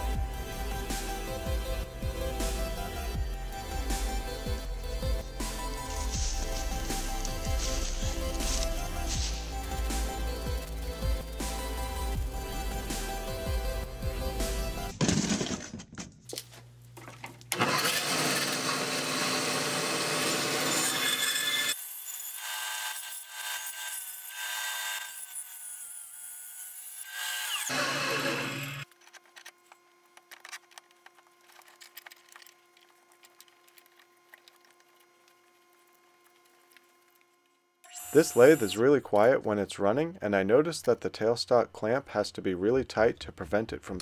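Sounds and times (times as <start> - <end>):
bandsaw cutting a log: 0.0 - 13.4, 17.5 - 28.9, 37.8 - 39.0.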